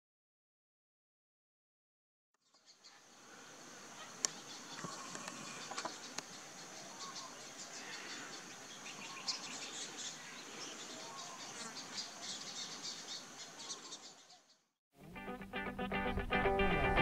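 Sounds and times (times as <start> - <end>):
high insect hum: 2.4 - 14.4.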